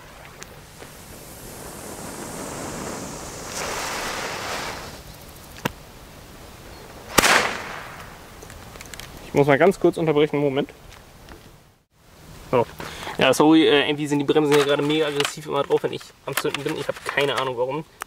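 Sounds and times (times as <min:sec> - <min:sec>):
ground firework hissing: 0:00.0 - 0:05.5
sharp firework bang: 0:07.1 - 0:08.2.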